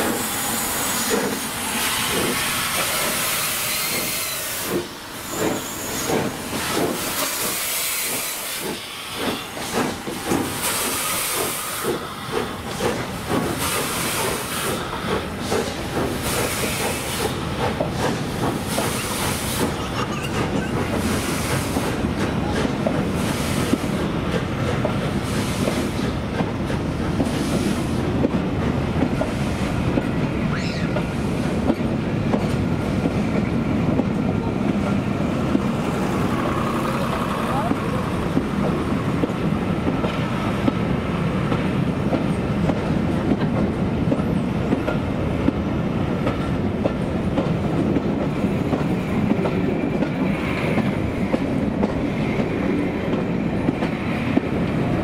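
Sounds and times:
steam locomotive exhaust beats: 0.0s - 19.8s
hissing steam: 0.0s - 43.4s
train rolling past: 0.0s - 55.0s.

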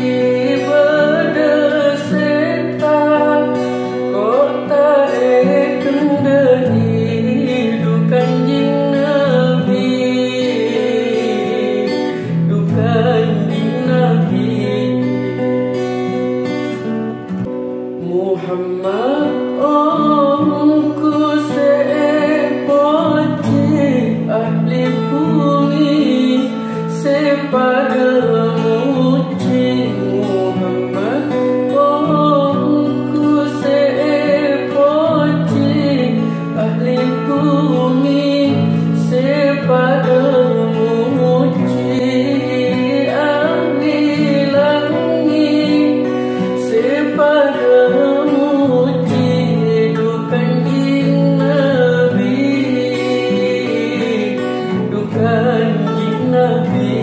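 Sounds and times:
person singing devotional song: 0.0s - 15.4s.

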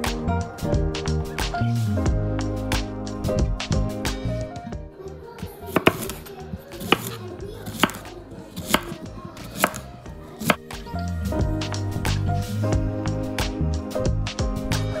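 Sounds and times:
knife chopping on cutting board: 5.7s - 10.7s.

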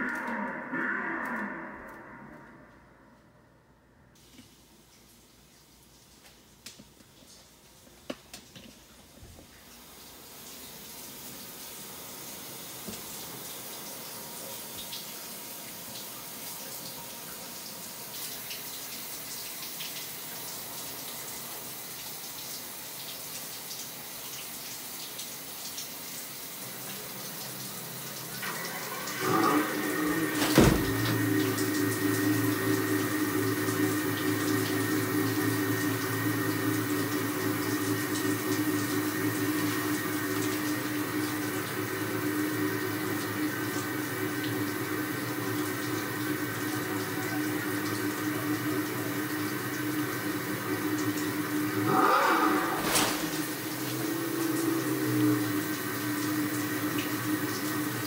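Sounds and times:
plumbing whine: 0.0s - 4.1s
shower water running: 4.2s - 58.0s.

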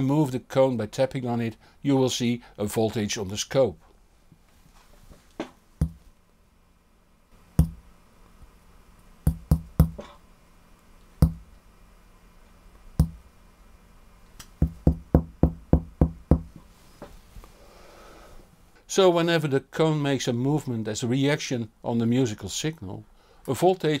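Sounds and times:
fingers tapping a speaker cone: 5.8s - 6.0s, 7.6s - 7.8s, 9.3s - 10.1s, 11.2s - 11.5s, 13.0s - 13.2s, 14.4s - 16.6s.

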